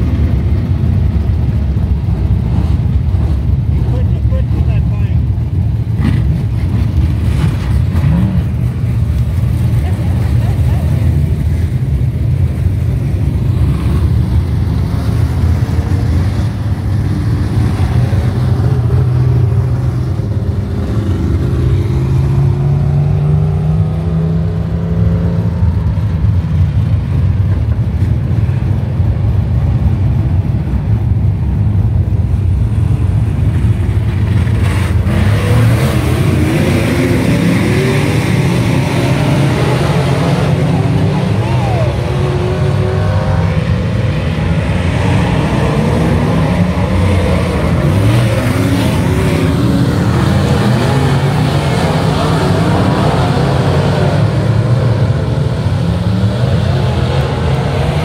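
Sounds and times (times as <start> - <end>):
engines revving up: 0.0 - 26.4, 31.7 - 58.0
race car engines rumbling: 0.0 - 58.0.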